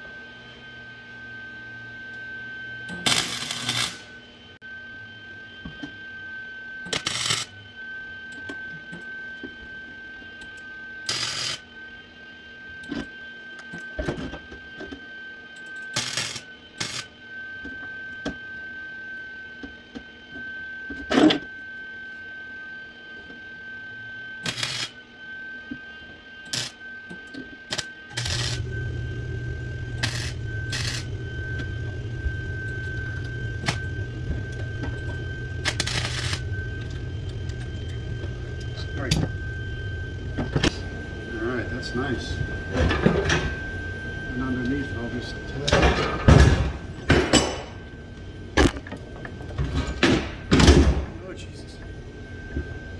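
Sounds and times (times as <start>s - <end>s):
steady high whine: 0.0s - 52.9s
steady low hum: 0.0s - 52.9s
arc welding burst: 2.9s - 4.1s, 6.9s - 7.5s, 11.1s - 11.6s, 16.0s - 17.1s, 24.4s - 24.9s, 26.5s - 26.8s, 27.7s - 28.7s, 29.9s - 31.2s, 35.6s - 36.5s.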